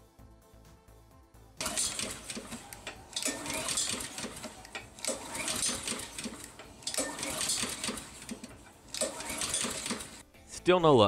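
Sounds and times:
lawn mower pull-cord cranking: 1.6 - 10.2.

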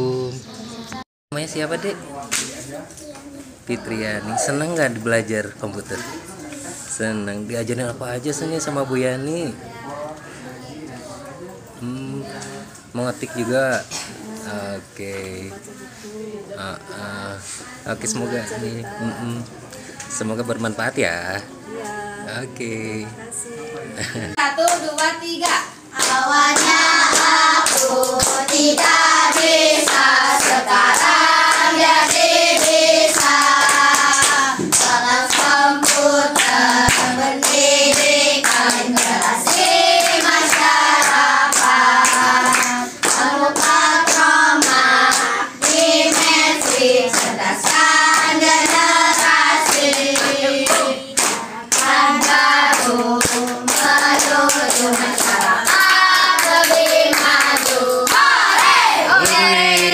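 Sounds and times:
hands clapping in rhythm: 2.3 - 2.6, 24.6 - 59.9
children singing together: 25.4 - 59.9.

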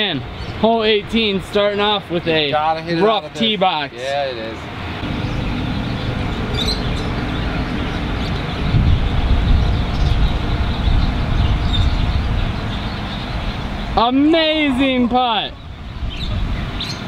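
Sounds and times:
wind buffeting microphone: 4.7 - 17.0.

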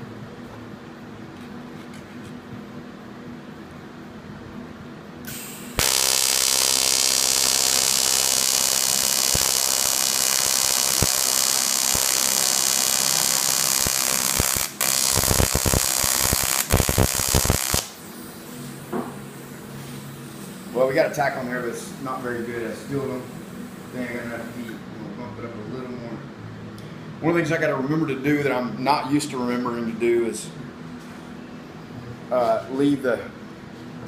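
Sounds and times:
welding arc buzzing and crackling: 5.3 - 18.1.

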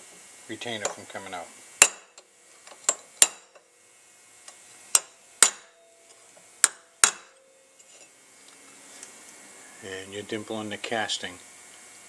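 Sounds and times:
hammer tapping steel punch: 1.8 - 2.2, 2.9 - 3.6, 5.0 - 5.8, 6.6 - 7.4.

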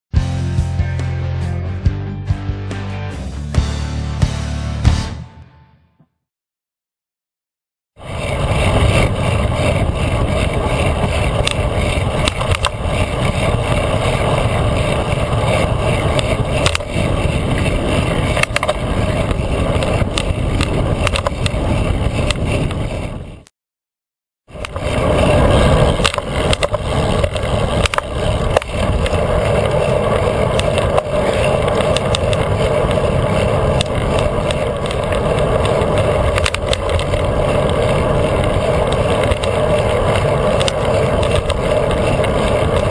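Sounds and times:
bicycle tyre rumble on pavement: 8.0 - 23.5, 24.4 - 42.9
bike clicks and rattles: 8.0 - 23.5, 24.5 - 42.9
wind rushing over camera: 8.0 - 23.5, 24.4 - 42.9.

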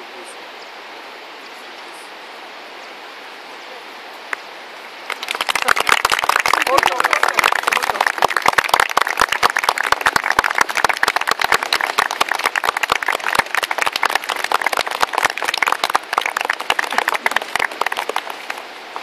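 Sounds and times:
small group applauding: 5.0 - 18.7.

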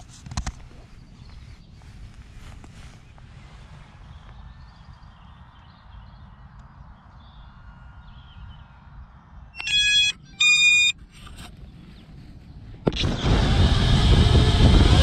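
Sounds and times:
faint outdoor background: 0.0 - 15.0
electronic beeps: 9.6 - 11.0.

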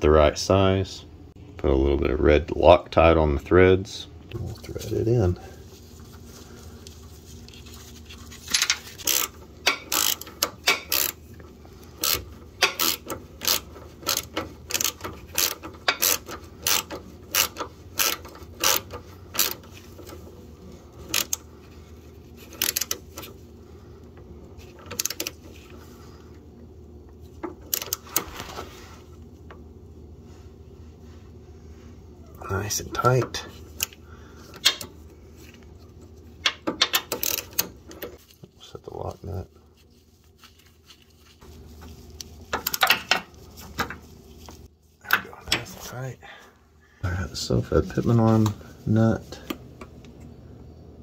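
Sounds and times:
hand ratchet clicking: 8.6 - 11.2, 12.0 - 20.2, 21.1 - 21.4, 22.5 - 23.3, 36.5 - 37.7.

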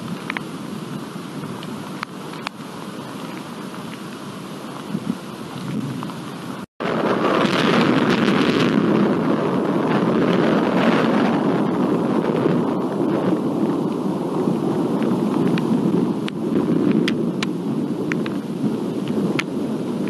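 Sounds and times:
thunder rumbling: 4.8 - 20.0.

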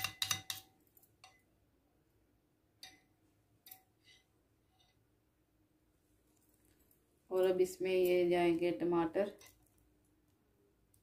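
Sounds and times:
metal spoon clinking on glass bowl: 0.0 - 1.5, 2.8 - 4.2.

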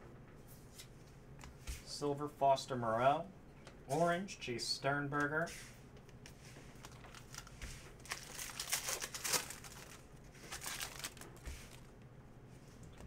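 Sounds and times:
foil wrapper crinkling: 6.7 - 11.9.

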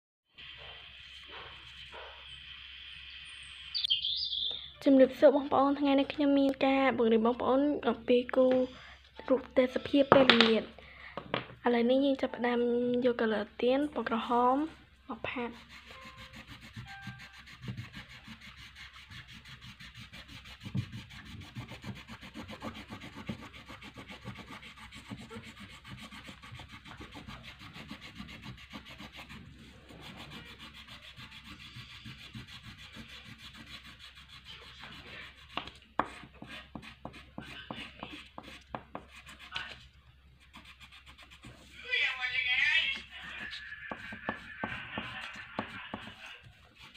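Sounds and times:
crayon scribbling on paper: 15.3 - 39.8, 40.4 - 41.8, 42.9 - 46.9.

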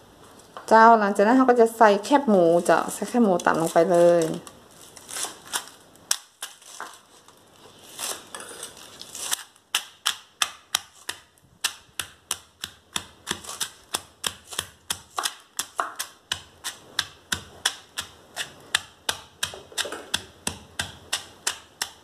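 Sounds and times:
pestle pounding in stone mortar: 9.7 - 22.0.

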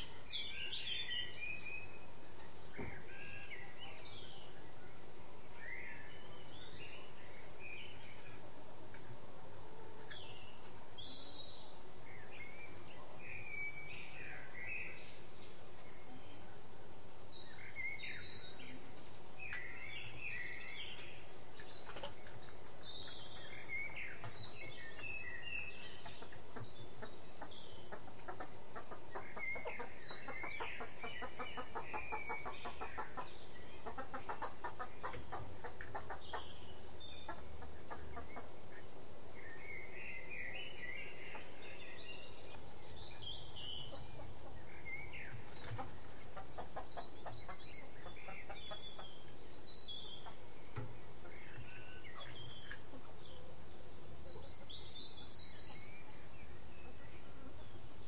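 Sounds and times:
small birds chirping: 0.0 - 58.0
chicken clucking: 21.6 - 36.6, 37.2 - 38.8, 41.1 - 42.6, 43.6 - 49.3, 50.0 - 50.5, 51.1 - 53.6.

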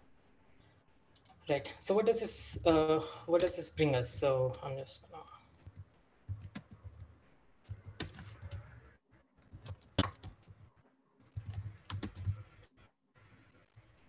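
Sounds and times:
computer keyboard typing: 5.5 - 7.1, 7.7 - 8.8, 9.4 - 10.6, 11.3 - 12.7.

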